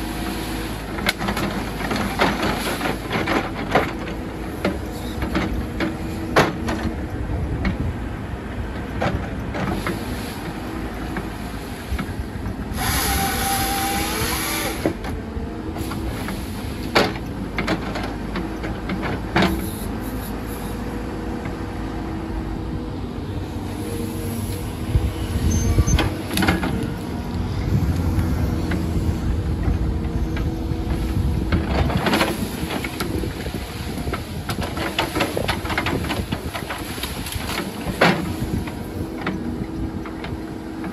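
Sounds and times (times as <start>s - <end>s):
excavator diesel engine running: 0.0s - 40.9s
hydraulic chain saw hissing and whining: 12.8s - 15.0s.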